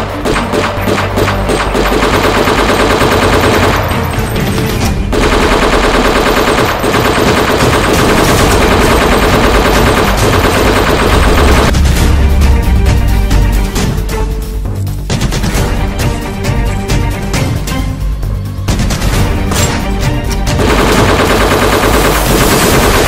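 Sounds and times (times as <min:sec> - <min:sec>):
rapid gunfire: 0:00.0 - 0:04.2, 0:05.1 - 0:11.8, 0:18.7 - 0:19.7, 0:20.5 - 0:23.0.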